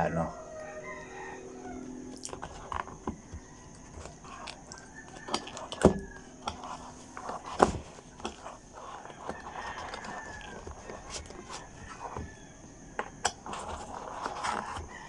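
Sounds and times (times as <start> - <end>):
rooster crowing: 0.0 - 7.5, 8.4 - 15.0
handling cardboard packaging: 2.2 - 15.0.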